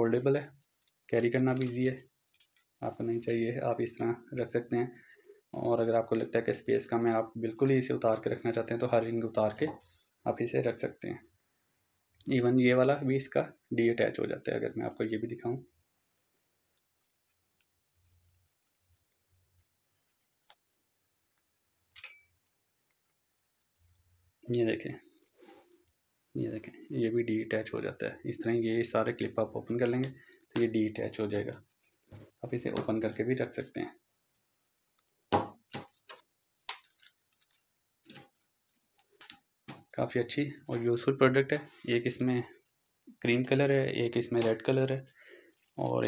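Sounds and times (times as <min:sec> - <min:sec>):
plastic rings clicking together: 0:00.5 - 0:03.4, 0:42.8 - 0:46.0.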